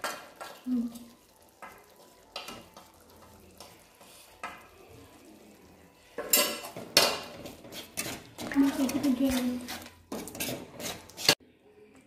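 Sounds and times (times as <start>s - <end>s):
masala sizzling in a pan: 0.0s - 11.4s
spoon scraping and clinking: 6.2s - 11.4s.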